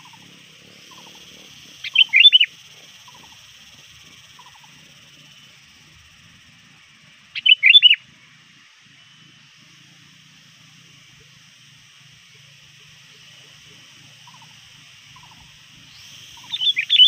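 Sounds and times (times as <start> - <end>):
bird chattering whistles: 0.0 - 5.6, 7.3 - 8.1, 14.2 - 17.0.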